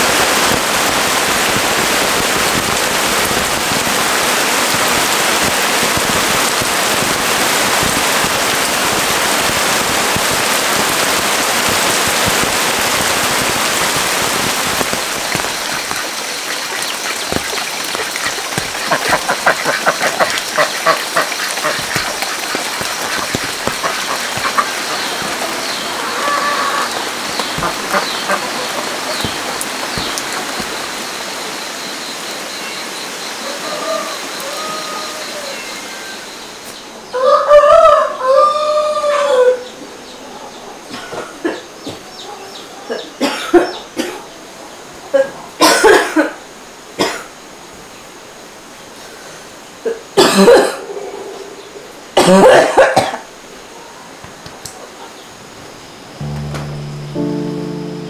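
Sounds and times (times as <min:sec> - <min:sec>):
heavy rain falling: 0:00.0 - 0:37.4, 0:51.8 - 0:58.0
faint steady high tone: 0:56.2 - 0:58.0.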